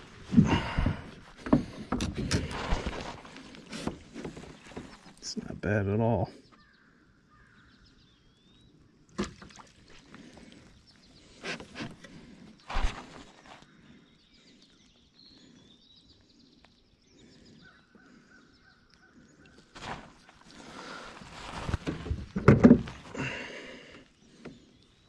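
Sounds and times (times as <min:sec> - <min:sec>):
knocks and thumps on kayak: 0:00.3 - 0:05.2, 0:21.6 - 0:23.2
faint bird chirps: 0:06.2 - 0:09.0, 0:10.4 - 0:21.0.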